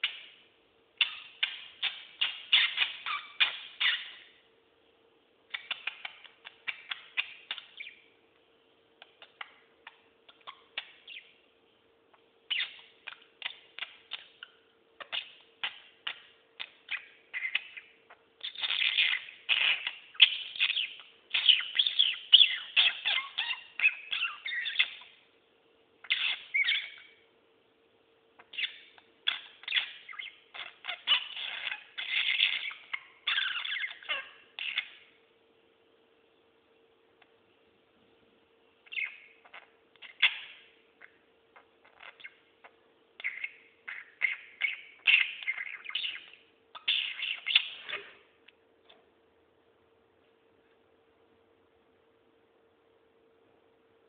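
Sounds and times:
budgerigar warbling and chirping: 0:00.0 - 0:00.4, 0:01.0 - 0:04.4, 0:05.5 - 0:08.1, 0:09.0 - 0:11.3, 0:12.5 - 0:25.2, 0:26.0 - 0:27.2, 0:28.4 - 0:35.2, 0:38.8 - 0:48.2.

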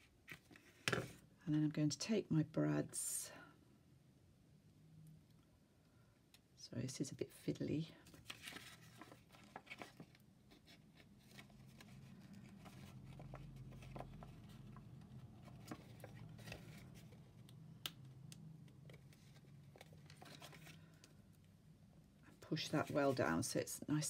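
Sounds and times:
paper rustling: 0:08.0 - 0:17.2, 0:18.9 - 0:21.0.

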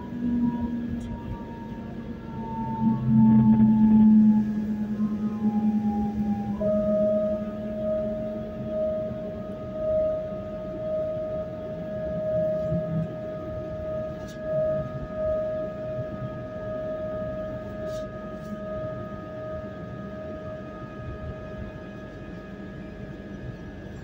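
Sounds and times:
wheels rumbling on track: 0:00.0 - 0:09.3
train high whine: 0:00.0 - 0:24.0.

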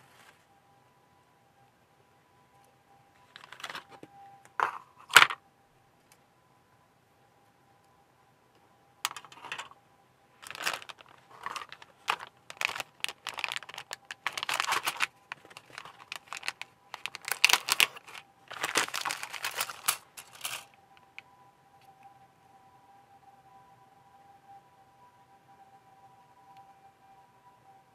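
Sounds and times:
plastic bag crinkling: 0:03.3 - 0:04.0, 0:09.1 - 0:09.7, 0:10.4 - 0:20.7.

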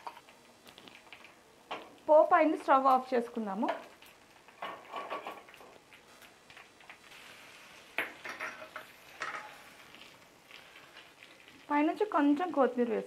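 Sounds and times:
steel cookware clinking: 0:08.0 - 0:09.6.

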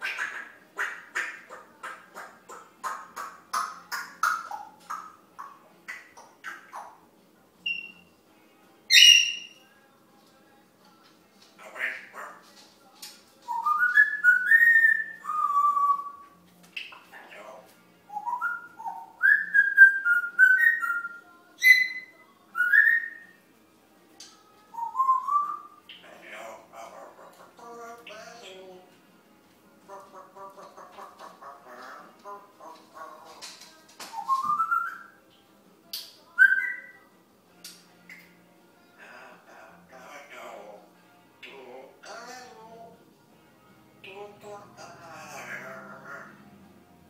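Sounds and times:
parrot calls: 0:00.0 - 0:07.0, 0:08.9 - 0:09.6, 0:11.6 - 0:12.5, 0:16.8 - 0:23.2, 0:24.7 - 0:28.7, 0:29.9 - 0:35.2, 0:44.0 - 0:46.5
parrot whistling: 0:07.6 - 0:08.1, 0:08.9 - 0:09.6, 0:13.5 - 0:16.2, 0:18.1 - 0:23.3, 0:24.7 - 0:25.8, 0:34.1 - 0:35.2, 0:36.4 - 0:37.0
parrot high whistle: 0:34.1 - 0:35.1.

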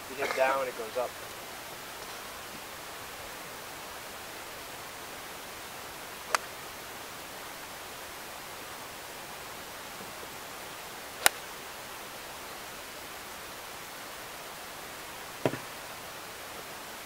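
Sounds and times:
background hiss: 0:00.0 - 0:17.0
golf club striking ball: 0:06.3 - 0:06.5, 0:15.4 - 0:15.8
small tap: 0:15.4 - 0:15.7.

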